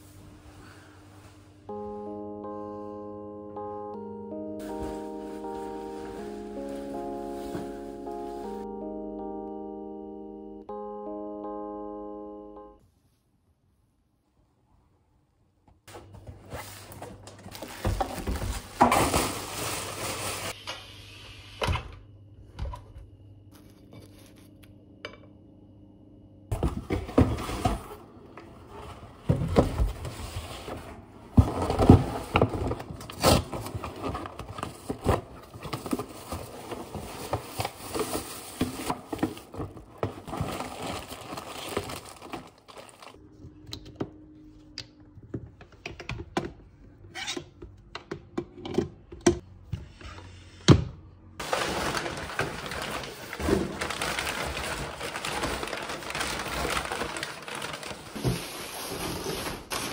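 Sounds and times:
cardboard and plastic rustling: 0:04.6 - 0:08.7, 0:15.9 - 0:20.6, 0:26.5 - 0:43.2, 0:51.4 - 0:59.9.

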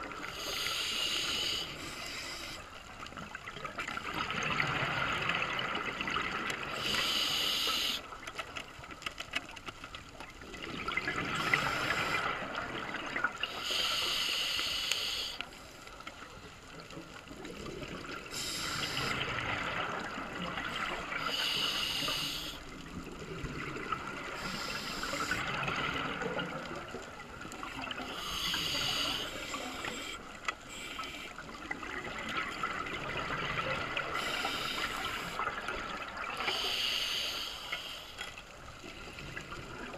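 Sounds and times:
regulator hissing and bubbling: 0:00.0 - 0:02.8, 0:04.4 - 0:08.1, 0:10.7 - 0:15.4, 0:17.6 - 0:38.2
underwater noise: 0:00.0 - 0:39.9.

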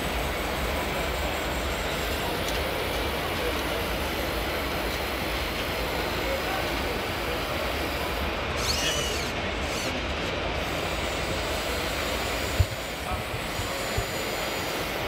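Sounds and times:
faint voices: 0:00.4 - 0:15.0.

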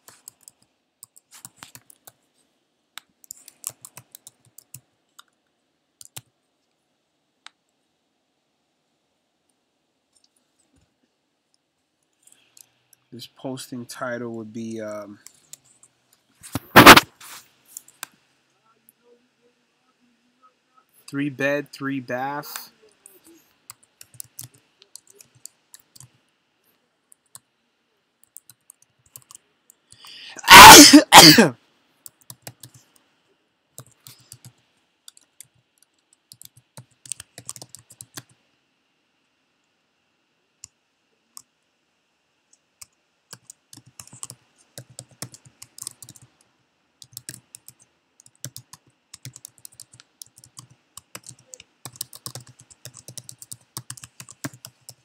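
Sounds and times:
keyboard typing: 0:03.2 - 0:05.4, 0:06.0 - 0:06.3, 0:16.6 - 0:17.1, 0:22.8 - 0:26.2, 0:28.2 - 0:29.4, 0:30.0 - 0:30.9, 0:32.0 - 0:32.8, 0:33.8 - 0:38.4, 0:42.8 - 0:46.4, 0:47.0 - 0:55.0
person coughing: 0:30.4 - 0:31.5.

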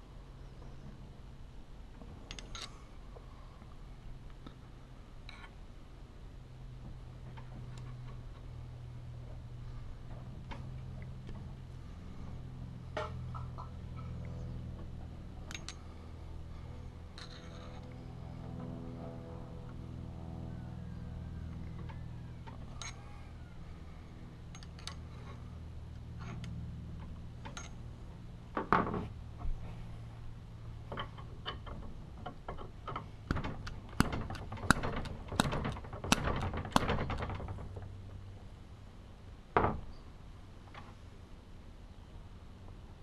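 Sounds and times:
low hum: 0:00.0 - 0:43.0
metal parts clinking and knocking: 0:02.2 - 0:02.8, 0:15.5 - 0:15.8, 0:17.2 - 0:17.9, 0:24.5 - 0:25.0.

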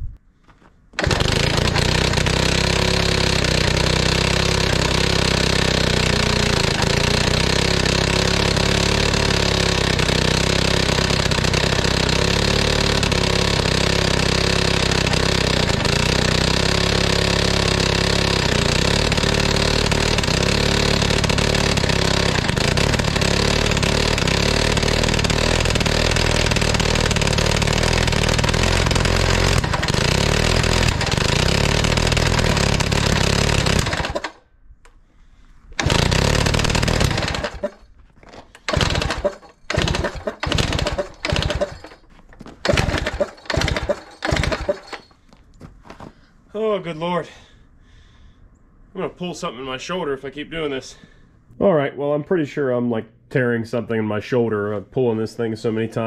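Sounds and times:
two-stroke engine running: 0:01.0 - 0:34.4, 0:35.8 - 0:45.2.

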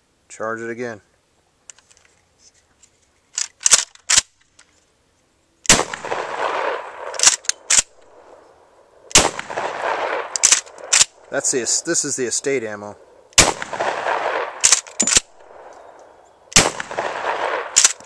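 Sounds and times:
shotgun blasts echoing: 0:05.7 - 0:08.4, 0:09.1 - 0:15.7, 0:16.5 - 0:18.0.

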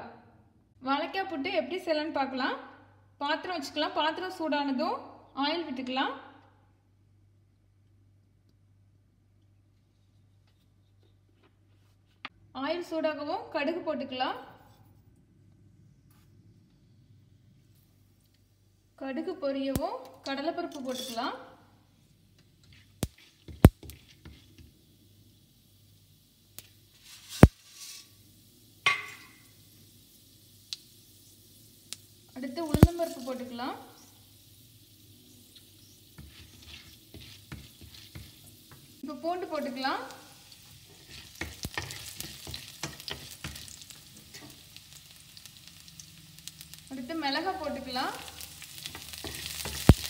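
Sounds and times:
mustard seeds popping in hot oil: 0:19.6 - 0:21.3, 0:22.3 - 0:50.0
oil crackling: 0:22.3 - 0:50.0
spatula clicking and tapping pan: 0:22.7 - 0:24.7, 0:28.8 - 0:29.4, 0:36.2 - 0:38.9, 0:41.0 - 0:44.6, 0:48.3 - 0:50.0.

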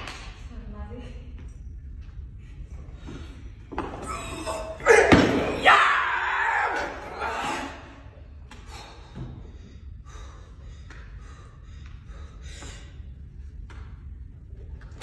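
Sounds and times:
low steady hum: 0:00.0 - 0:15.0
man breathing hard: 0:08.5 - 0:13.3.

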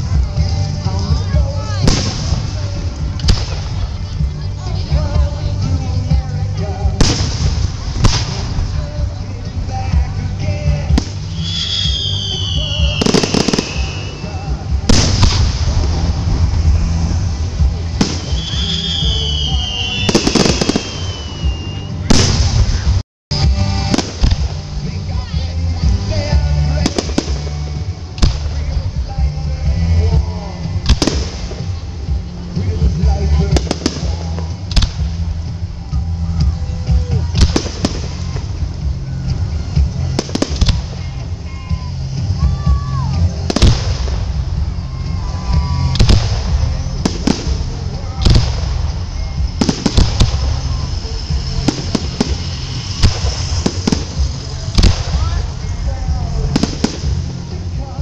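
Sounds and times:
firework crackling burst: 0:00.0 - 0:58.0
low rumble: 0:00.0 - 0:58.0
firework bang: 0:07.0 - 0:08.8, 0:10.9 - 0:23.0, 0:43.5 - 0:57.4
falling firework whistle: 0:11.3 - 0:15.4, 0:18.0 - 0:23.0, 0:39.0 - 0:47.6, 0:48.6 - 0:55.2.

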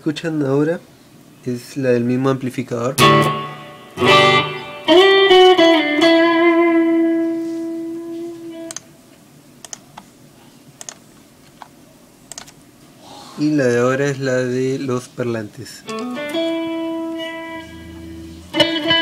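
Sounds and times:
electric guitar chords: 0:03.0 - 0:08.8, 0:15.9 - 0:19.0.

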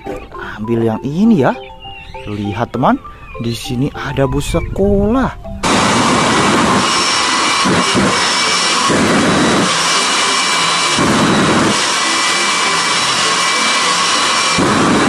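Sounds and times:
jet engine roaring: 0:04.5 - 0:15.0
afterburner rumbling surges: 0:05.6 - 0:15.0.

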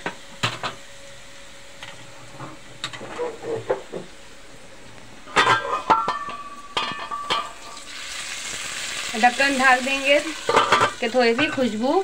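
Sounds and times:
hot oil sizzling: 0:00.0 - 0:12.0
metal pot lid clattering: 0:05.3 - 0:07.7, 0:10.4 - 0:11.7.

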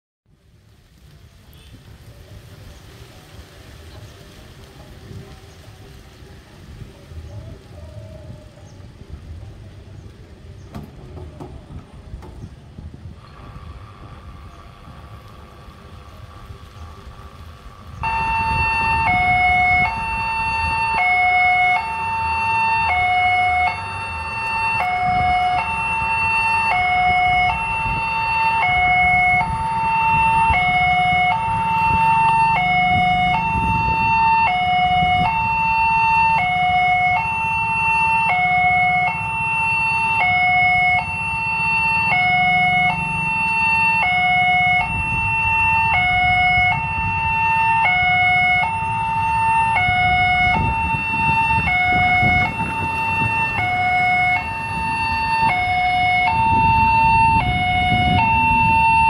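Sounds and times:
level crossing two-tone alarm: 0:18.0 - 0:59.0.

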